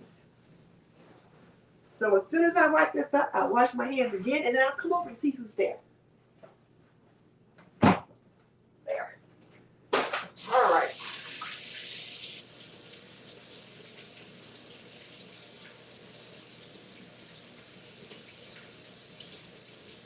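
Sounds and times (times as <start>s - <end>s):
hands washing under water: 10.4s - 12.0s
faucet running: 10.4s - 20.0s.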